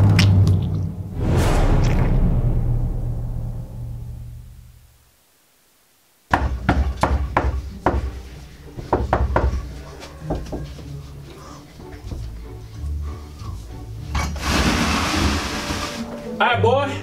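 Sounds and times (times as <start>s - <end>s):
knocking on wooden door: 6.3s - 8.1s, 8.8s - 10.7s.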